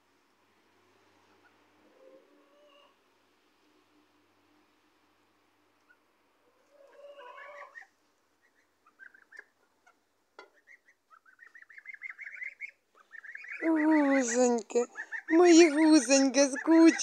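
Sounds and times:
goslings calling softly: 5.8 - 17.0.

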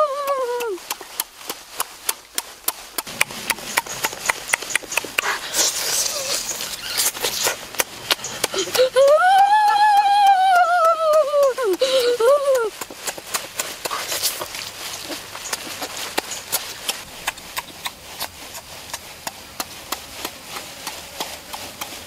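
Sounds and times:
boy high-pitched ooh: 0.0 - 0.9, 8.6 - 12.8
boy chewing and lip smacking: 0.1 - 22.0
breathy blowing and sucking: 3.0 - 9.1.

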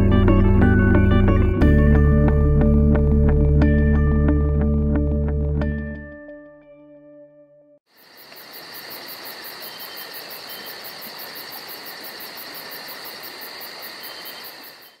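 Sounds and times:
insects trilling: 7.9 - 15.0.

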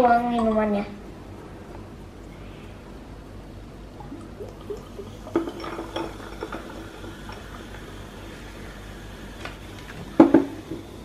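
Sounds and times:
soda pouring into glass of ice: 4.1 - 11.0.

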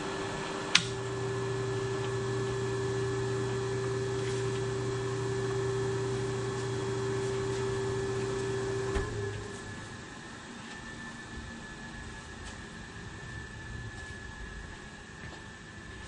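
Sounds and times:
electrical motor hum: 0.0 - 16.0
switch click: 0.7 - 1.0.

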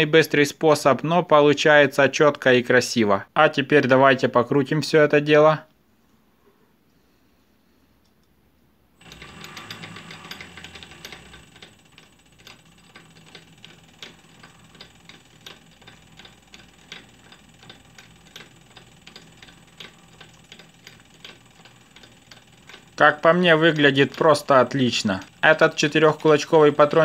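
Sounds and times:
light rhythmic ticking: 9.0 - 27.0
metal lathe running: 9.0 - 27.0.

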